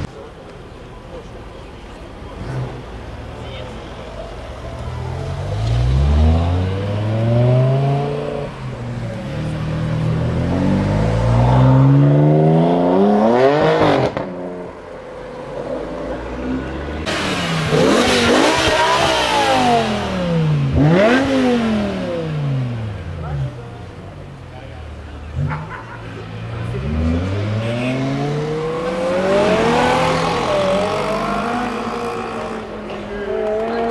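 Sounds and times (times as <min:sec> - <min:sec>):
car engine revving hard: 0:05.4 - 0:08.6, 0:09.5 - 0:14.4, 0:17.0 - 0:23.2, 0:26.5 - 0:33.9.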